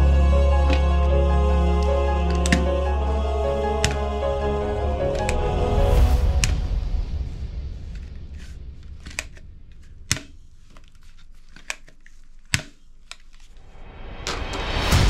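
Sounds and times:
background music: 0.0 - 9.4, 13.6 - 15.0.

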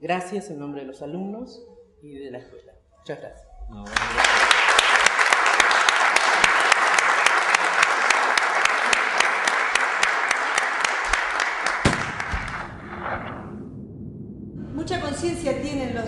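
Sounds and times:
children applauding: 3.9 - 12.6
close hands clapping in even beat: 3.9 - 12.7.

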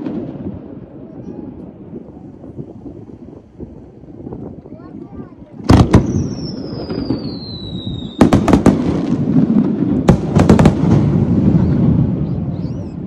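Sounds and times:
firework whistle: 5.9 - 8.7, 11.3 - 13.0.

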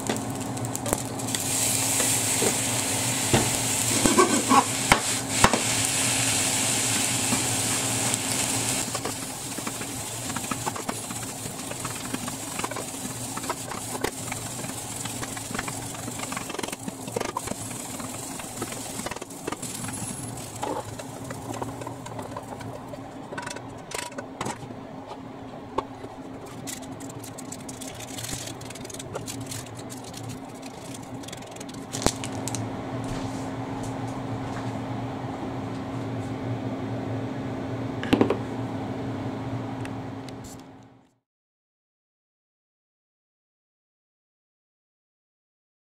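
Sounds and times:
rice sizzling in frying pan: 0.0 - 23.3, 26.4 - 32.6.

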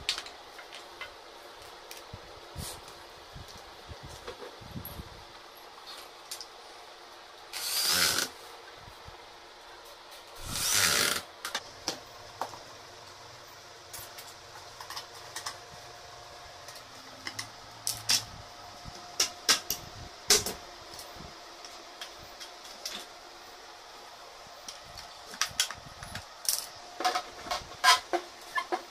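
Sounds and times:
electric drill driving screws: 7.5 - 8.3, 10.4 - 11.3.

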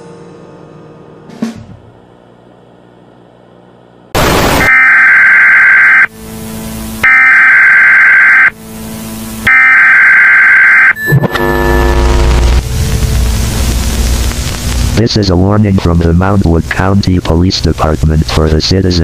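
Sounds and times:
burst of static: 4.2 - 6.1, 6.8 - 8.5, 9.2 - 19.0
harsh buzzing data bursts: 4.2 - 15.0
alert tone: 4.6 - 6.1, 7.0 - 8.6, 9.5 - 12.0.

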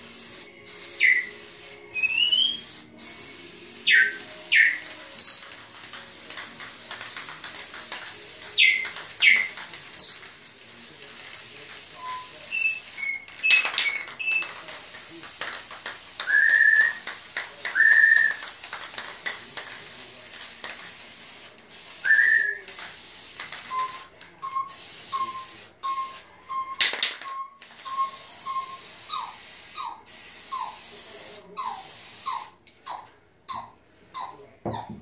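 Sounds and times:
spray-paint can hissing: 0.0 - 32.6
parrot whistling: 2.0 - 2.6, 3.9 - 5.6.

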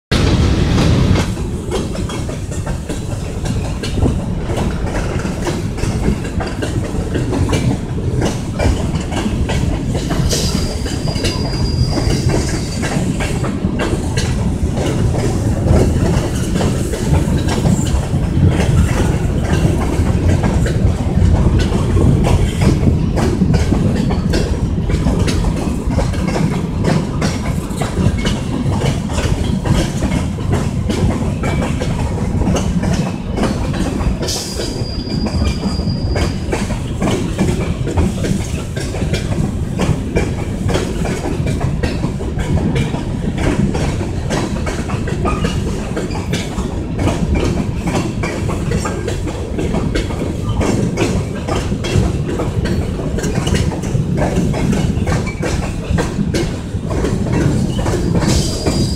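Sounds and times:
freight train cars rumbling: 0.1 - 58.9
wheel clicks over rail joints: 0.7 - 58.9
high squeal: 10.7 - 12.3.

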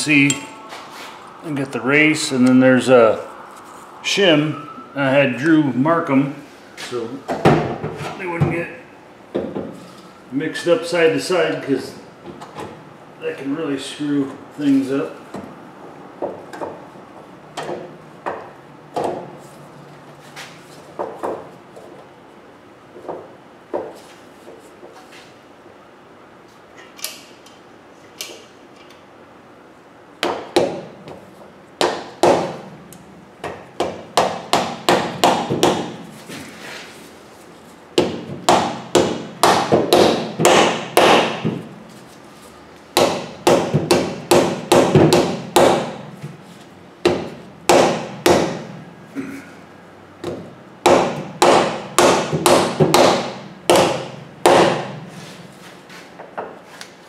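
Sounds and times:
hammer striking metal: 0.2 - 0.6.

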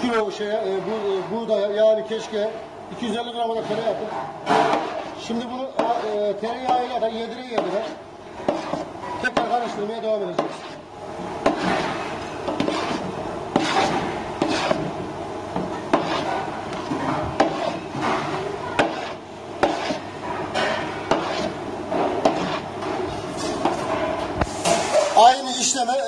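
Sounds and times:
spoon scraping a metal pot: 10.4 - 10.9, 11.5 - 14.9, 15.9 - 17.9, 21.1 - 21.6.

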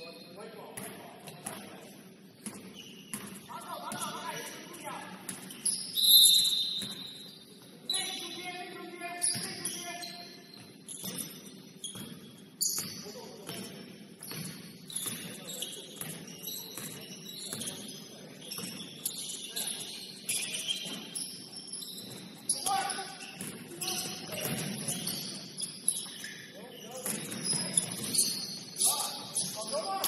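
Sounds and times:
sneakers squeaking on court: 0.0 - 30.0
basketball bouncing: 24.3 - 25.1.

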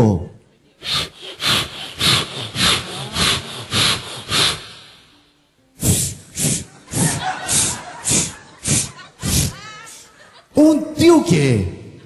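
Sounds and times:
man imitating a handsaw: 0.8 - 5.1, 5.8 - 10.0.

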